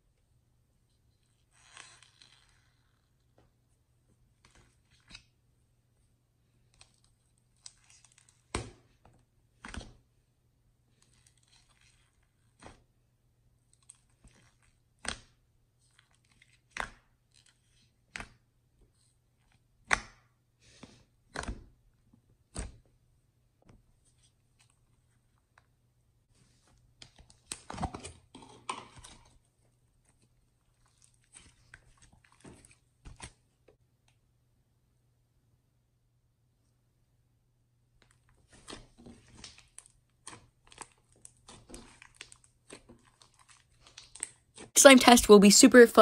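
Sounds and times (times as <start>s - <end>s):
faint crackling of slime: 6.5s - 8.8s, 10.9s - 12.9s, 13.6s - 18.4s, 26.9s - 33.4s, 38.0s - 44.7s.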